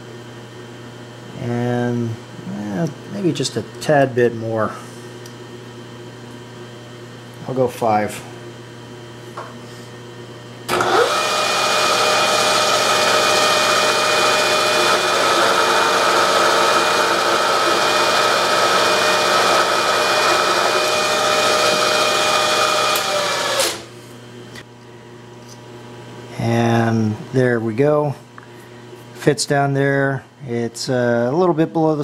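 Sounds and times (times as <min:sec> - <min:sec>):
milling machine spindle whining: 0:10.7 - 0:23.9.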